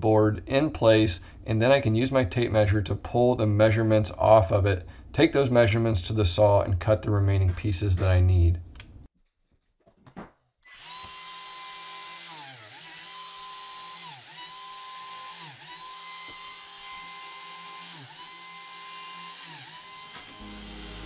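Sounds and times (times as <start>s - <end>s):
biscuit joiner cutting wood: 10.7s - 21.0s.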